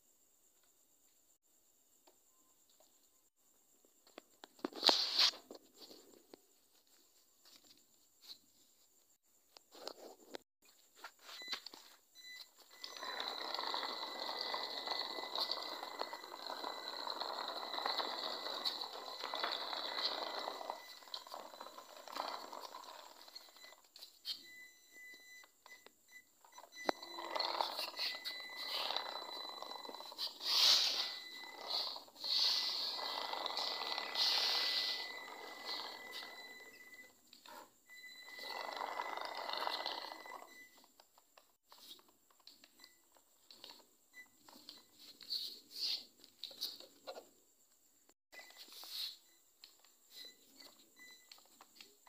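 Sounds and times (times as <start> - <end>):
toy truck wheels clicking and scratching: 12.6 - 24.5, 26.5 - 37.7
small electric motor whirring: 12.8 - 23.8, 26.8 - 36.8
short electronic beeps: 23.3 - 33.0, 34.1 - 37.2, 50.1 - 51.4
high electronic tone: 26.6 - 37.2
short rasps: 26.9 - 36.7.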